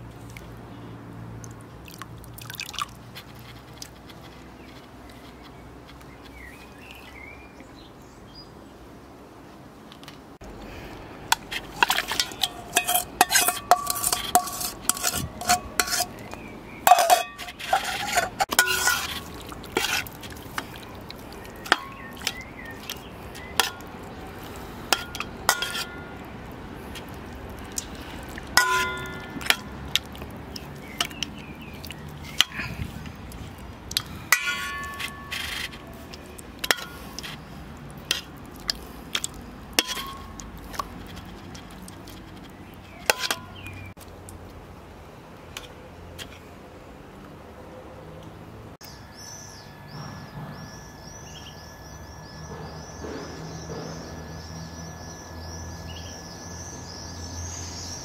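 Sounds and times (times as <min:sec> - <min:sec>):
metal spoon clinking enamel bowl: 0:11.8 - 0:16.3, 0:16.9 - 0:20.0, 0:21.6 - 0:23.0, 0:24.9 - 0:26.3, 0:28.5 - 0:29.8, 0:34.3 - 0:37.4, 0:39.8 - 0:40.5, 0:43.0 - 0:43.6.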